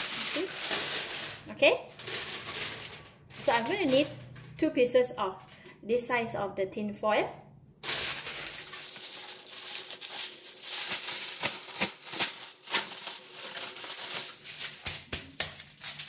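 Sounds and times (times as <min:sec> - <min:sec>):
foil crinkling: 0:00.0 - 0:04.2, 0:07.8 - 0:16.0.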